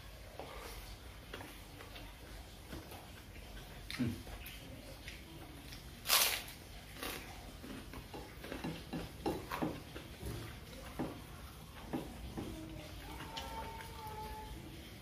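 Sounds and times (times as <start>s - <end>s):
crackling and crunching: 5.7s - 7.8s
cracker snapping: 6.0s - 7.2s.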